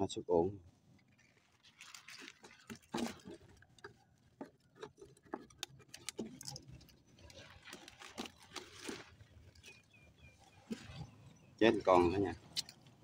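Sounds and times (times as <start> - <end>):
leaves rustling: 1.1 - 3.4, 7.1 - 9.9.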